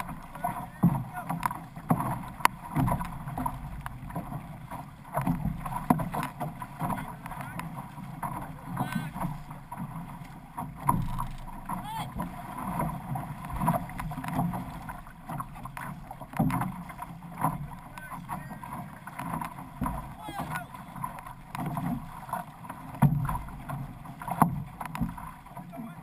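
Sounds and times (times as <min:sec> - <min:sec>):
water splashing against canoe hull: 0:00.0 - 0:26.0.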